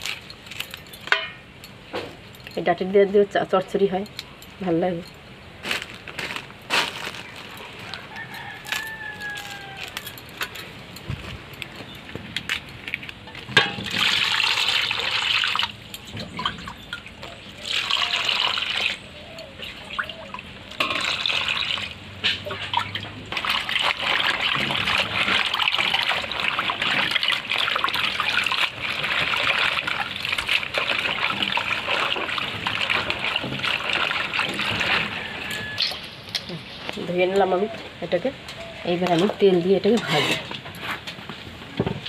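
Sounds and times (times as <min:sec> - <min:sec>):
water splashing in metal basin: 0:13.3 - 0:36.4.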